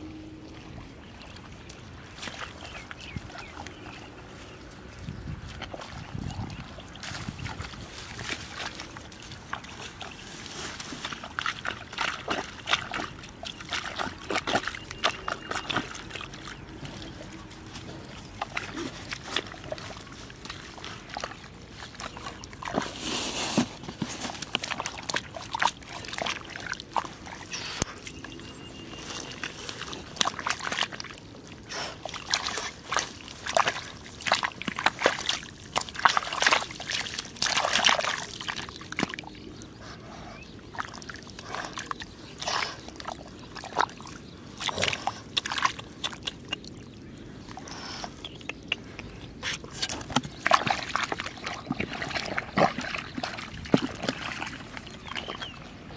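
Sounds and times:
mud squelching and splashing: 0:00.0 - 0:55.9
hands digging in wet mud: 0:01.2 - 0:55.9
grass rustling: 0:04.2 - 0:39.2.

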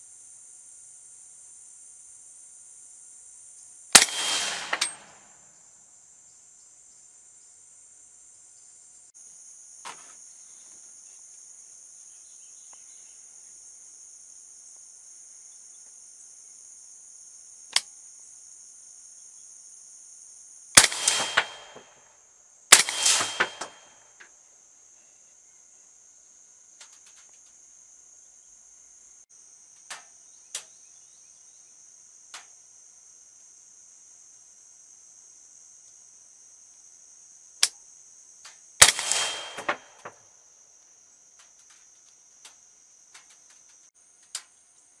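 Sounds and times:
night insects chorus: 0:00.0 - 0:45.0
rifle shots: 0:04.0 - 0:05.3, 0:20.8 - 0:21.9, 0:22.7 - 0:23.9, 0:38.8 - 0:40.0.

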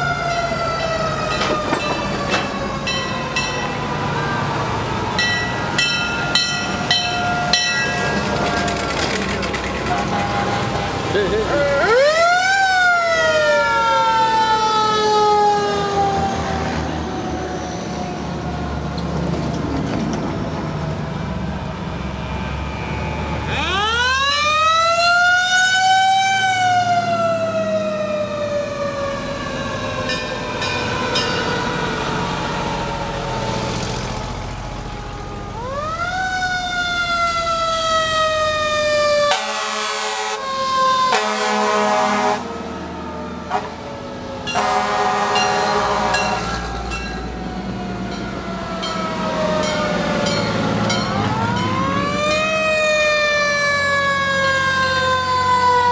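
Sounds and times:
fire truck siren wailing: 0:00.0 - 0:19.5, 0:20.1 - 0:55.9
truck engines rumbling: 0:00.0 - 0:55.9
horn blasts: 0:39.3 - 0:40.5, 0:41.1 - 0:42.6, 0:43.5 - 0:43.8, 0:44.4 - 0:46.6.

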